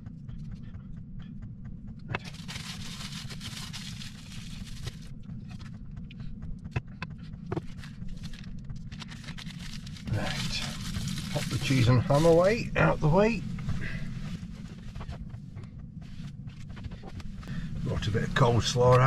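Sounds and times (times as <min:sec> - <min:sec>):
heater humming: 0:00.0 - 0:19.0
foil and packaging crinkling: 0:02.2 - 0:05.1, 0:08.2 - 0:12.6.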